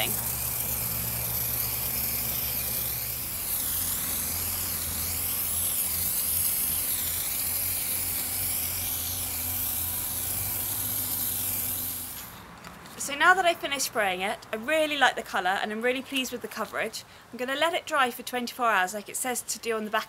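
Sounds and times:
spray paint can hissing: 0.0 - 12.5.

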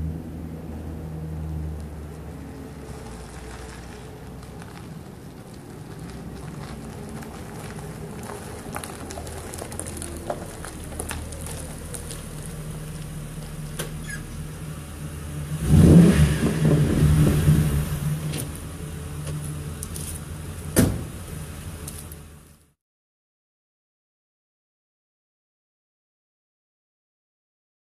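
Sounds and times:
car engine rumbling: 0.0 - 22.8
car door shutting: 20.7 - 21.2.

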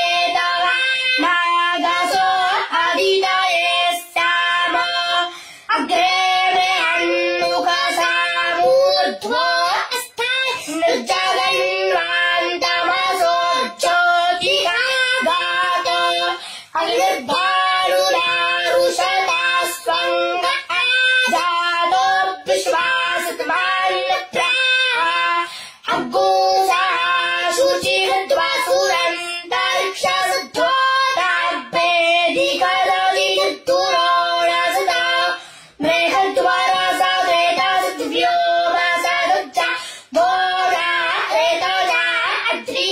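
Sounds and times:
boy chanting: 0.0 - 42.9.

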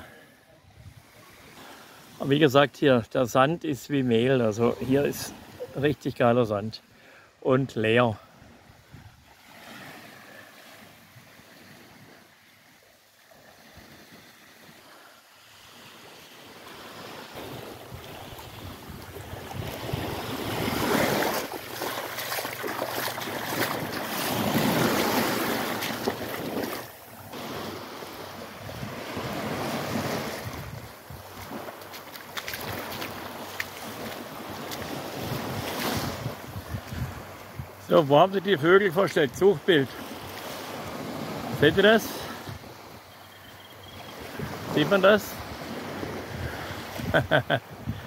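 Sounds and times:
small waves washing on beach: 0.0 - 48.0
wind on microphone: 17.4 - 21.4, 28.6 - 31.6, 34.7 - 37.8, 45.9 - 48.0.

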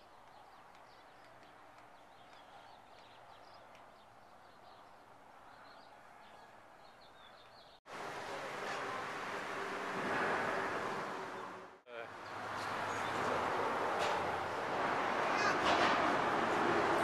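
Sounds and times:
small birds chirping: 0.0 - 7.8, 12.1 - 13.4.

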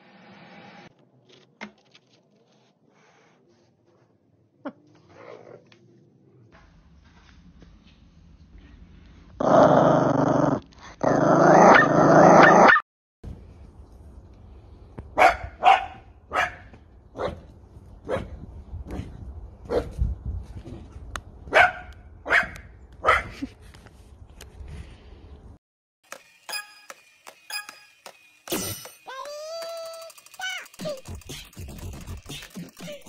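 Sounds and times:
dog growling: 9.4 - 12.6
dog barking yaps: 15.2 - 17.4, 18.0 - 18.3, 21.5 - 23.4.

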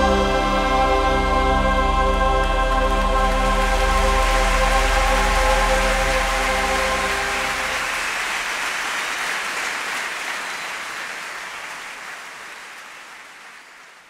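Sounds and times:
choir and orchestra chord: 0.0 - 8.0
audience applause: 2.1 - 14.0.

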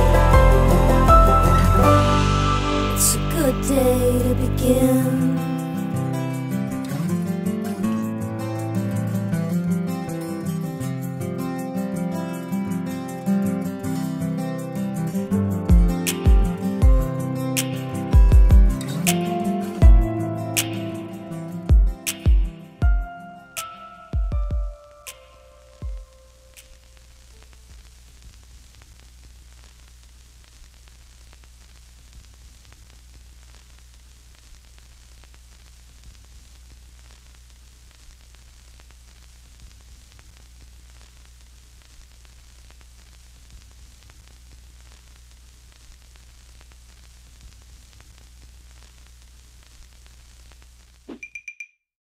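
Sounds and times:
faint crackles: 25.2 - 51.1.

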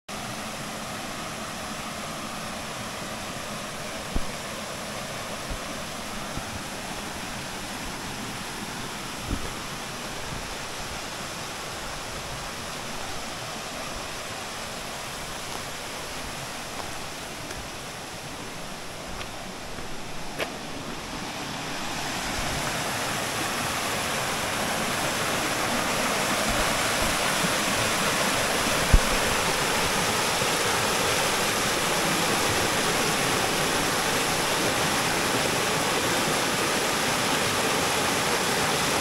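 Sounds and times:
stream rushing over rocks: 0.1 - 39.0.

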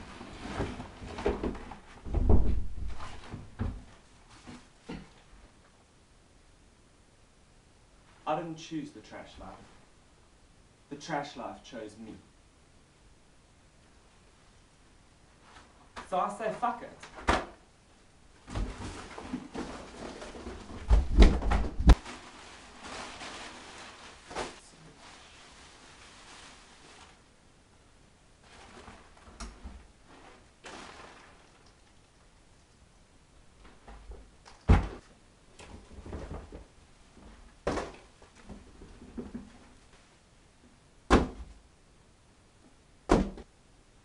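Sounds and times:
cardboard and paper rustling: 18.5 - 27.2, 28.4 - 31.6.

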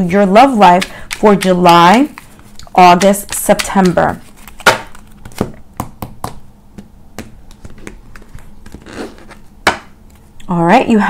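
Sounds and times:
cards being shuffled: 0.7 - 5.6, 7.2 - 9.5.

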